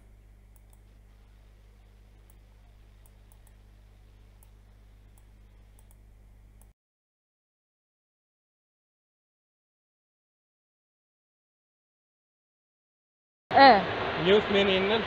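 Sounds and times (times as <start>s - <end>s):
faint clicks: 0.0s - 3.7s, 4.3s - 6.7s
faint electrical hum: 0.0s - 6.8s.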